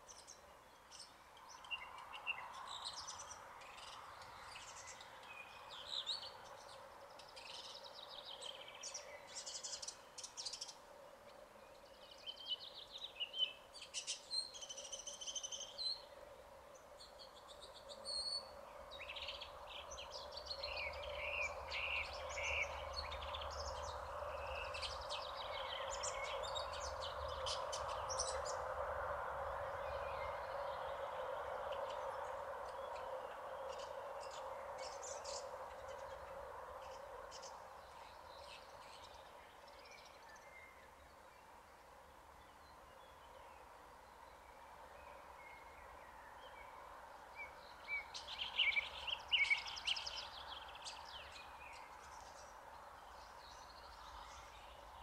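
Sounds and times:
bird singing chirps and trills: 16.8 - 41.6, 42.4 - 55.0.

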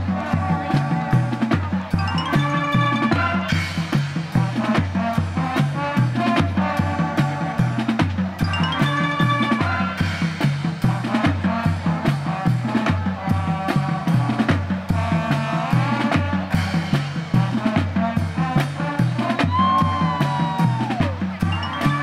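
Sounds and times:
drum line beat: 0.0 - 22.0
marching band brass and winds: 0.0 - 22.0.

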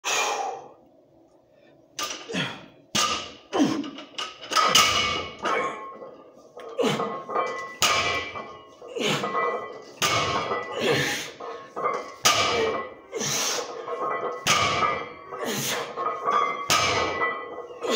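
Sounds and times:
barbell plates knocking: 2.9 - 13.0, 13.7 - 17.9
person grunting: 3.5 - 3.9.

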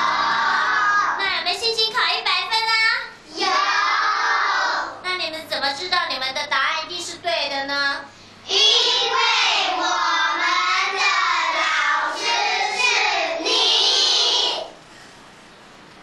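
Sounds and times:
children singing in unison: 0.0 - 1.1, 8.5 - 14.7.

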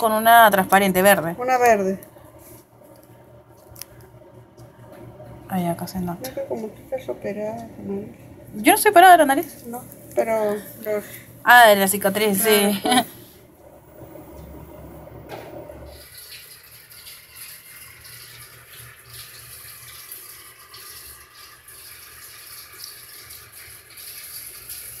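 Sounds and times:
low hum: 0.0 - 16.0
water running faintly: 0.0 - 25.0.

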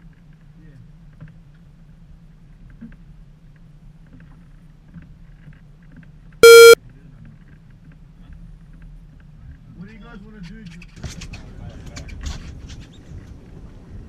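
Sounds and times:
loud short beep: 6.4 - 6.8.

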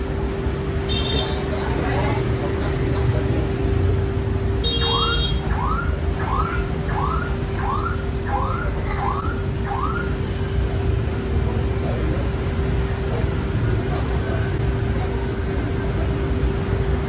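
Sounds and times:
constant hum: 0.0 - 17.0
street traffic rumble: 0.0 - 17.0
electronic alarm whooping: 4.7 - 10.2.

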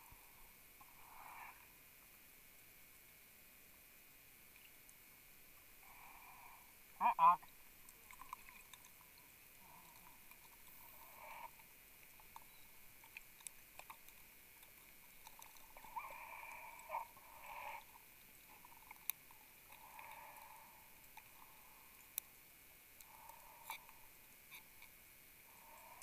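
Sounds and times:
soft breathing hisses underwater: 0.0 - 2.0, 10.7 - 11.8, 15.8 - 18.6, 19.6 - 22.4, 23.0 - 24.8, 25.4 - 26.0.

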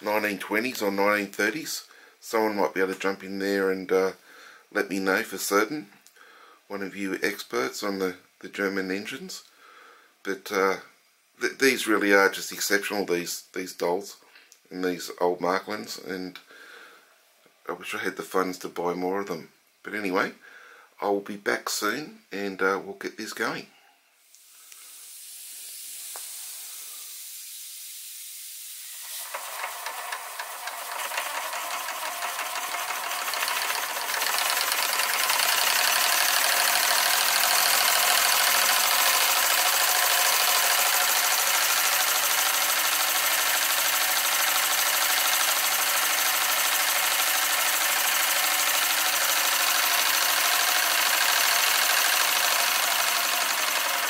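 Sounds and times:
steam hissing: 24.3 - 54.0
toy steam engine running: 28.8 - 54.0.

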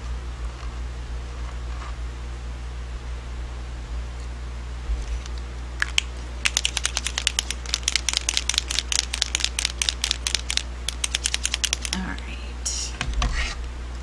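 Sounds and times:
marker mixing ball rattling: 5.8 - 12.2.

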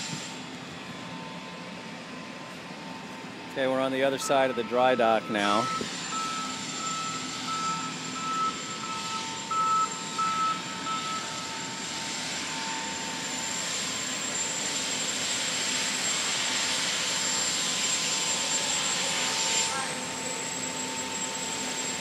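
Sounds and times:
reversing alarm beeping: 0.0 - 22.0.

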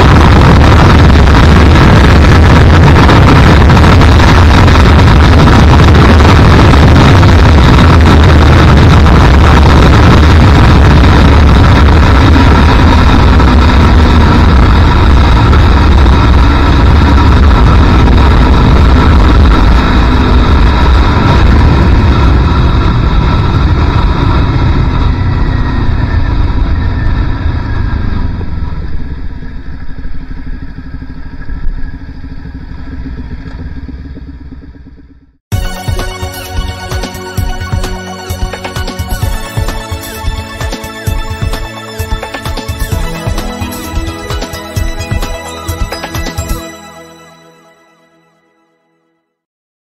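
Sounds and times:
wind rush over microphone: 0.0 - 35.4
motorcycle engine: 0.0 - 46.9.

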